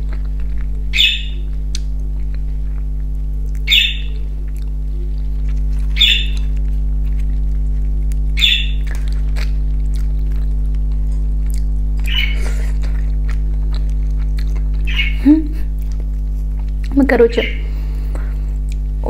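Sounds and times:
low electrical hum: 0:00.0 - 0:19.0
squeaky mouth smacks: 0:12.0 - 0:13.0.

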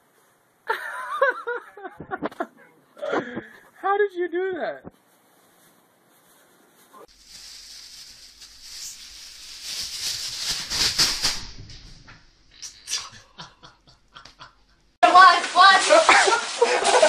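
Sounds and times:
plastic bag rustling: 0:05.0 - 0:12.3, 0:15.0 - 0:17.0.

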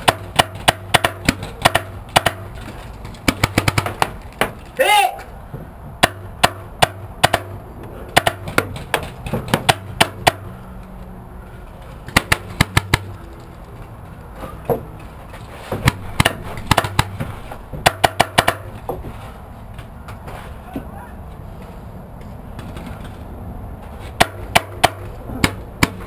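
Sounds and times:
paintball markers firing: 0:00.0 - 0:04.5, 0:12.1 - 0:13.2.

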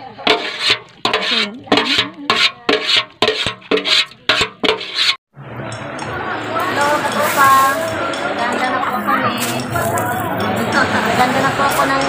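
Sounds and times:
rasping scraping strokes: 0:00.2 - 0:05.2.

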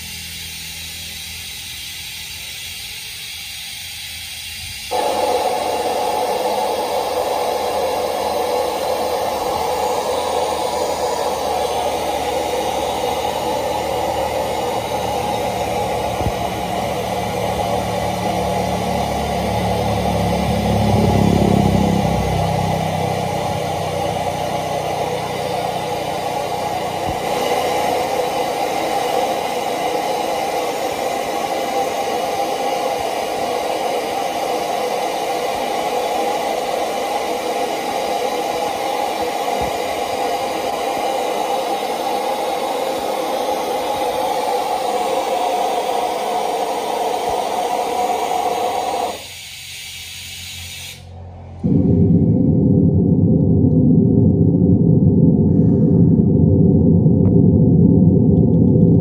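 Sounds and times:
test noise hiss: 0:00.0 - 0:51.2
deep low rumble: 0:08.8 - 0:26.2, 0:51.2 - 0:59.0.

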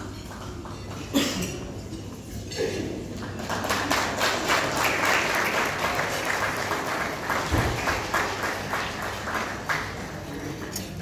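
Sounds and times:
audience applauding: 0:03.2 - 0:10.7.

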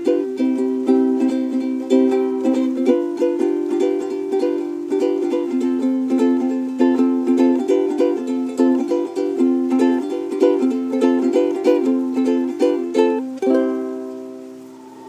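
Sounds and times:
ukulele strummed chords: 0:00.0 - 0:15.0.

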